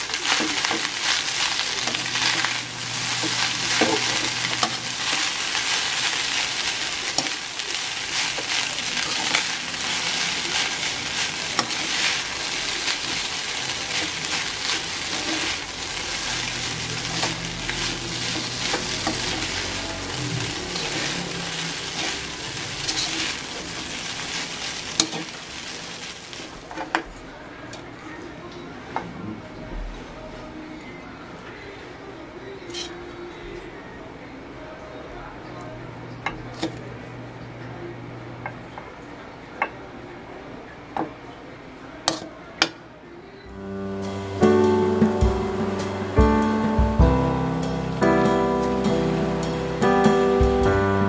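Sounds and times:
rice sizzling in a wok: 0.0 - 27.0, 43.5 - 51.0.

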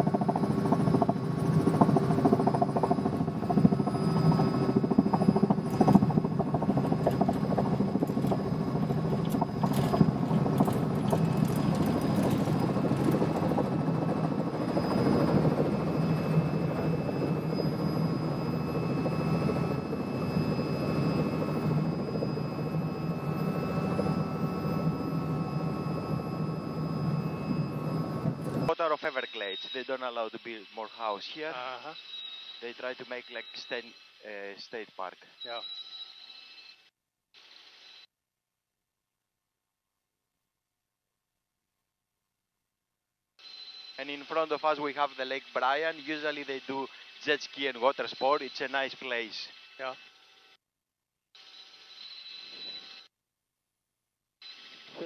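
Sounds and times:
helicopter engine and rotor: 0.0 - 34.6
faint high steady tones: 2.6 - 38.1, 43.4 - 50.6.

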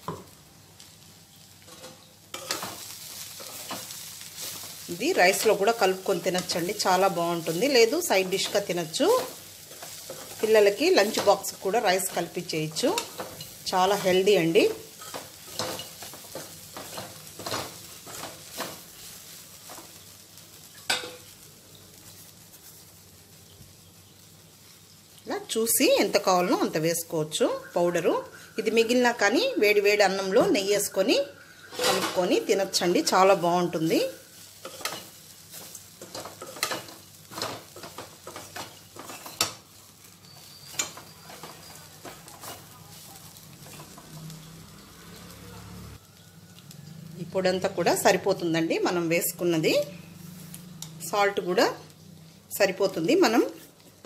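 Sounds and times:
faint sizzle: 0.0 - 54.0
spatula scraping and tapping a pan: 1.6 - 20.0, 34.6 - 44.4
utensil scraping a pan: 31.7 - 32.4, 40.2 - 44.3.

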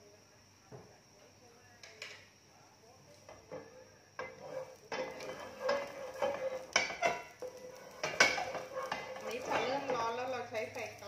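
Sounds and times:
wooden spatula scraping a pan: 3.3 - 10.9.

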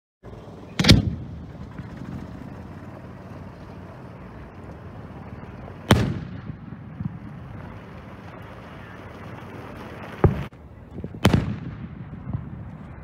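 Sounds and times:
firework launch thump: 10.1 - 12.5.

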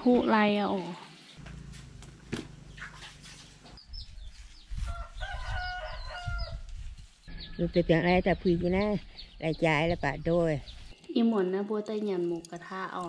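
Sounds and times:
low rumble: 1.4 - 4.4.

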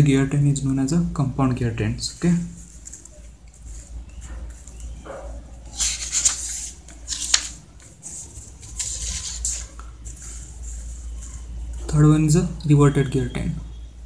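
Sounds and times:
paper rustling and rubbing: 2.5 - 11.6.

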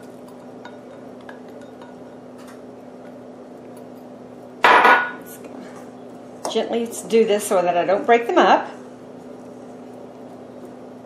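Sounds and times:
loud ringing glass clink: 4.7 - 5.2.

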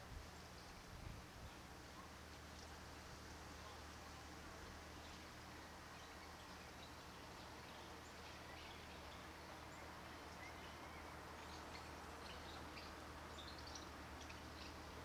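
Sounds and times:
low hiss and hum: 0.0 - 15.0
faint high bird chirps: 5.9 - 15.0.

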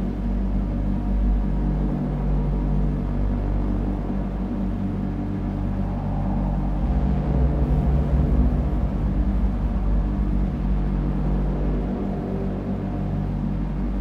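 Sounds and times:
large vehicle engine rumbling: 4.8 - 14.0.

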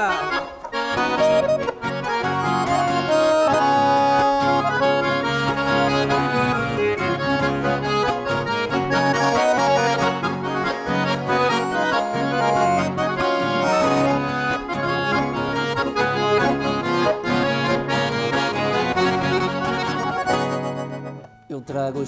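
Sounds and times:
bass notes: 0.0 - 21.4
accordion playing country music: 0.0 - 22.0.

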